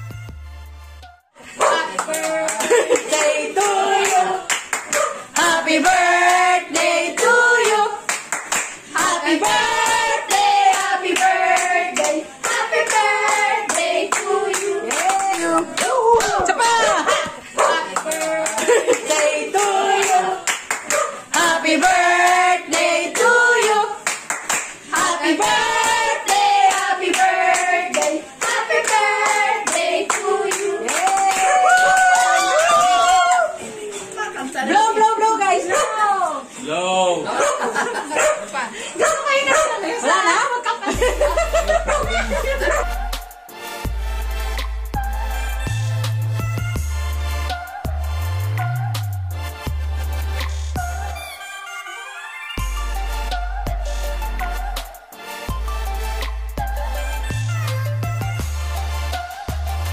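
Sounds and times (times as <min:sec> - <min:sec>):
group singing: 0:01.4 - 0:08.2, 0:08.8 - 0:24.2, 0:24.8 - 0:31.8, 0:39.8 - 0:44.2, 0:47.3 - 0:49.3, 0:58.8 - 0:59.9
hands clapping: 0:01.7 - 0:05.5, 0:06.2 - 0:09.2, 0:10.3 - 0:21.5, 0:22.2 - 0:24.9, 0:25.8 - 0:33.5, 0:50.4 - 0:50.6.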